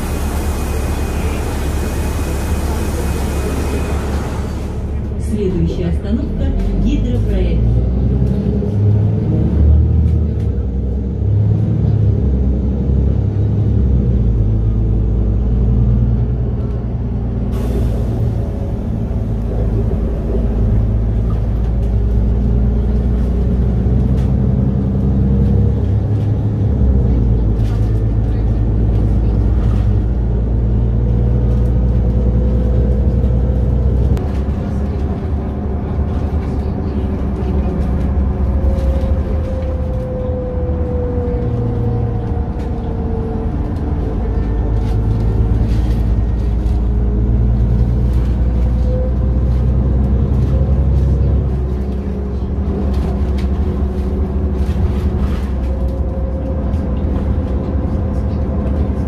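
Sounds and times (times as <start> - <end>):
bus engine drone: 0.0 - 59.0
road noise: 0.0 - 59.0.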